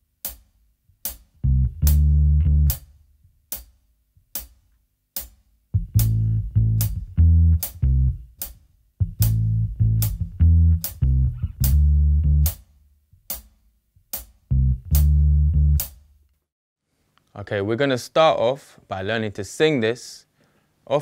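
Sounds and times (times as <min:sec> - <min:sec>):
sharp metronome clicks: 0:00.2 - 0:02.9, 0:05.2 - 0:12.7, 0:13.3 - 0:16.0
electric bass guitar bassline: 0:01.4 - 0:02.8, 0:05.8 - 0:08.3, 0:09.0 - 0:12.6, 0:14.5 - 0:15.9.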